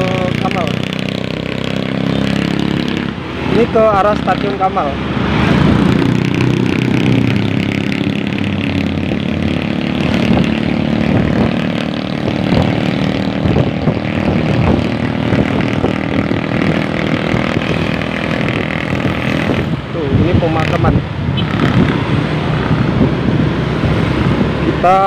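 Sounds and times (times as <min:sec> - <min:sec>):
motorcycle engine cruising: 0:00.0 - 0:25.0
wind and road noise: 0:00.0 - 0:25.0.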